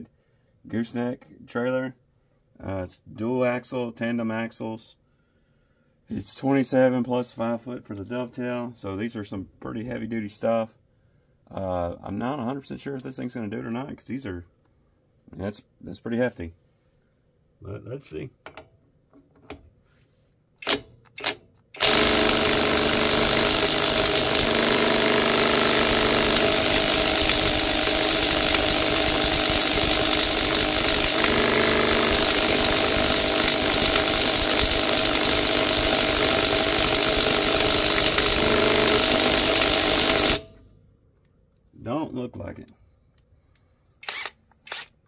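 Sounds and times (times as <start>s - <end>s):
cordless impact wrench hammering: 20.6s - 40.6s.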